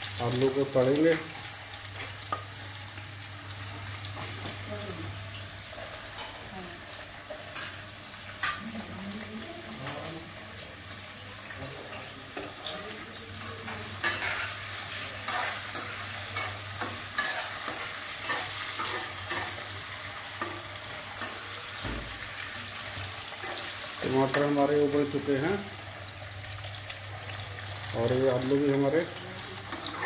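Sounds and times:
potatoes sizzling in a pan: 0.0 - 30.0.

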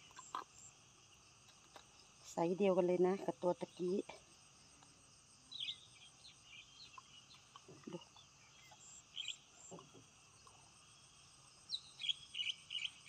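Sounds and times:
crickets droning: 0.0 - 13.0.

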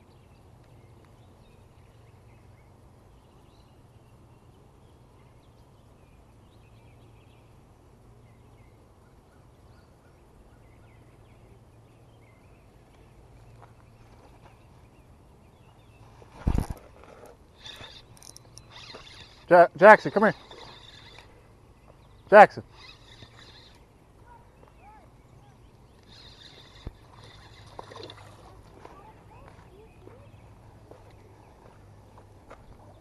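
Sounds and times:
steady low hum: 0.0 - 33.0
small bird chirps: 17.6 - 19.5, 20.3 - 28.2.

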